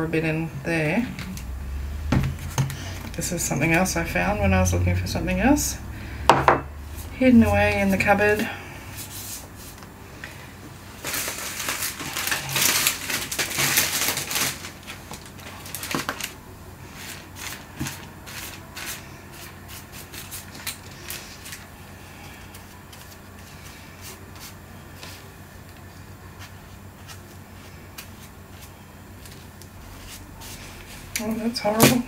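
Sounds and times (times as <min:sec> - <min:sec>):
paintbrush scrubbing paper: 0:16.9 - 0:21.5, 0:26.3 - 0:31.1.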